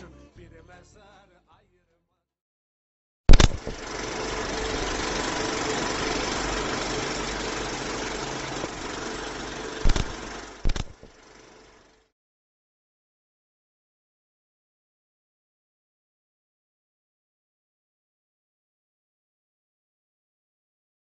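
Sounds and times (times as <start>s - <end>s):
projector clicks: 3.3s - 3.9s, 9.6s - 11.2s
film projector running: 3.3s - 12.1s.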